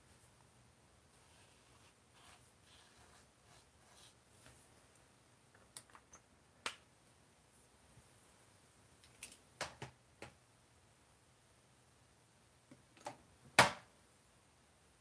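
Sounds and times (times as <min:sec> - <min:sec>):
marker scratching on paper: 0:01.1 - 0:04.2.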